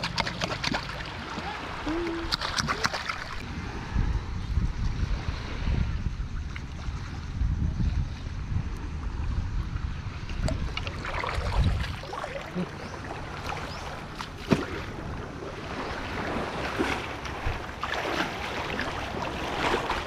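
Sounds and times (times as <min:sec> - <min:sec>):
legs wading through water: 0:00.0 - 0:03.4, 0:10.3 - 0:20.0
wind on microphone: 0:01.6 - 0:20.0.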